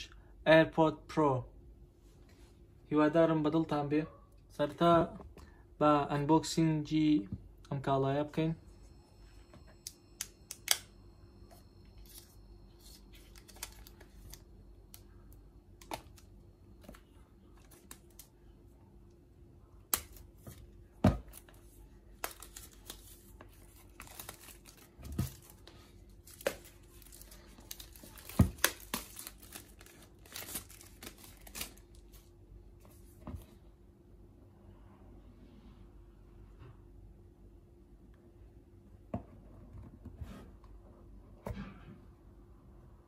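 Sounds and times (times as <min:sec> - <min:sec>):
plastic wrap crackling and snapping: 0:22.2 - 0:32.1.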